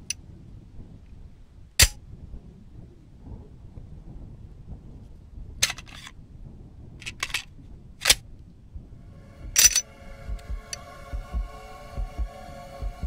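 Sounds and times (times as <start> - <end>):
droning chord: 8.9 - 13.0.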